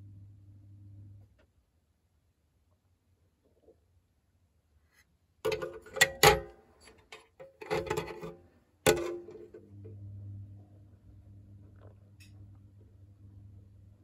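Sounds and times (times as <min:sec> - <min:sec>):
low steady hum: 0:00.0 - 0:01.5, 0:07.6 - 0:14.0.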